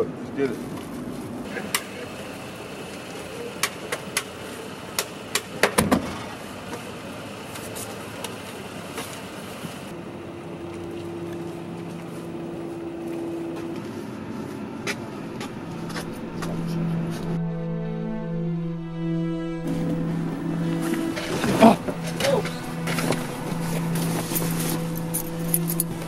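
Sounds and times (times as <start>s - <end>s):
low hum: 9.9s - 26.0s.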